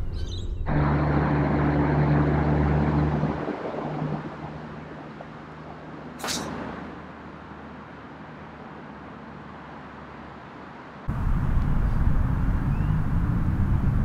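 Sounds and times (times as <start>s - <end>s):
low background rumble: 11.1s - 14.0s.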